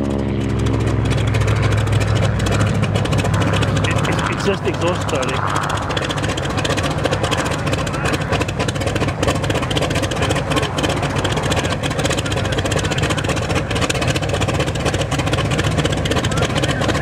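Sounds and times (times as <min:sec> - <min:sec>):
propeller plane engine idling: 0:00.0 - 0:17.0.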